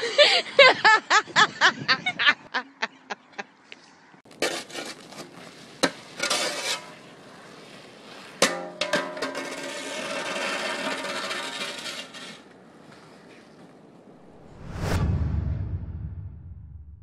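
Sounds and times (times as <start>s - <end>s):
people laughing: 0.0s - 3.5s
snow shovel scraping asphalt: 4.3s - 13.6s
shovel clattering on pavement: 8.4s - 12.4s.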